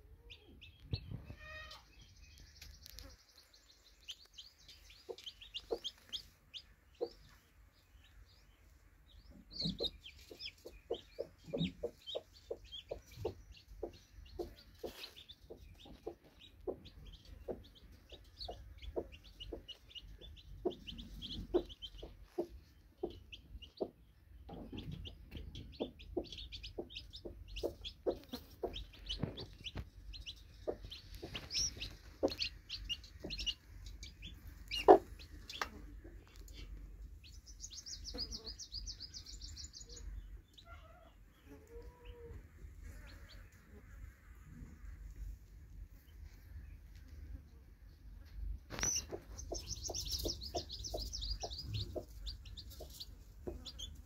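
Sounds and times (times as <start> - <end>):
chicks peeping: 0.0 - 43.9, 48.2 - 54.0
hen clucking: 4.7 - 7.4, 9.3 - 36.8, 48.7 - 54.0.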